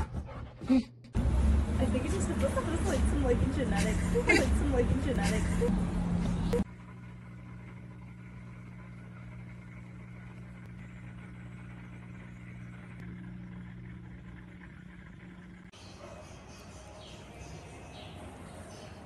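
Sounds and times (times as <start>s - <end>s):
aquarium equipment humming: 1.2s - 19.0s
street noise and voices: 1.7s - 6.6s.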